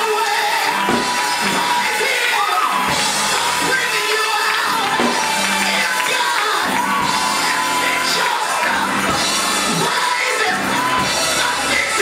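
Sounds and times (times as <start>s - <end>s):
drums: 0.0s - 12.0s.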